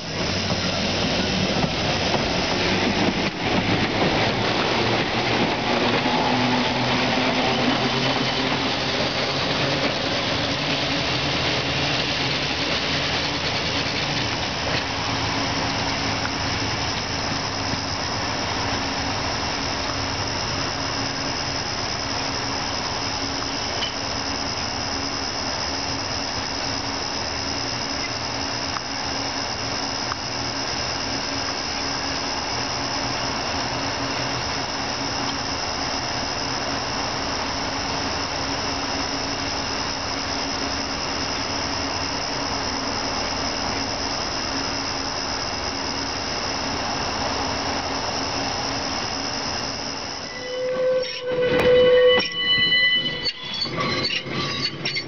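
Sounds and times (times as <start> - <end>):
electric streetcar running: 0.0 - 55.0
high-pitched whine: 0.0 - 55.0.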